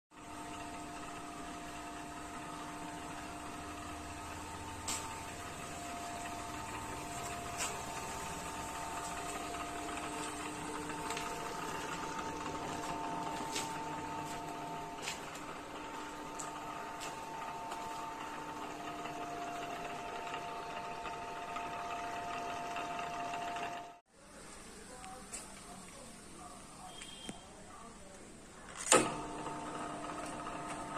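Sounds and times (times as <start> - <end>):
milling machine drilling steel: 0.2 - 24.0.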